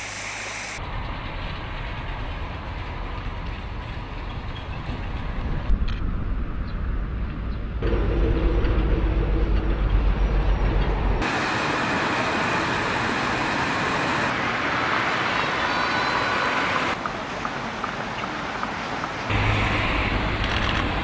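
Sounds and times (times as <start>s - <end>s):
steady outdoor hiss: 0.0s - 4.6s, 11.2s - 21.0s
trucks driving past: 6.9s - 21.0s.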